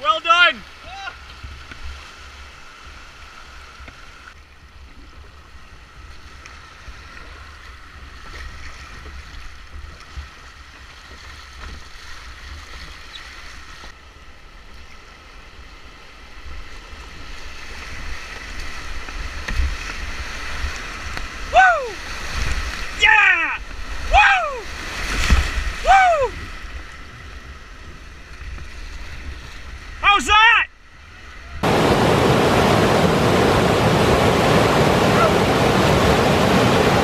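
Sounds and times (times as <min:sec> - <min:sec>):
river rapids rushing: 0:30.0 - 0:37.0.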